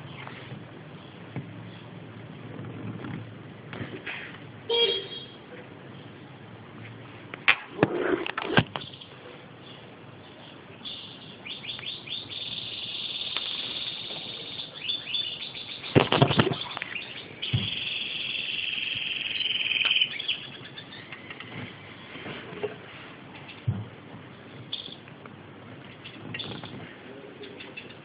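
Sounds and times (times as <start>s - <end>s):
goldfinch singing: 10.8s - 21.4s.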